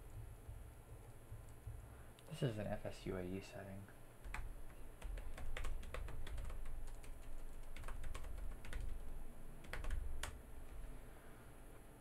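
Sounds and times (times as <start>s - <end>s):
typing on a keyboard: 4.2s - 10.4s.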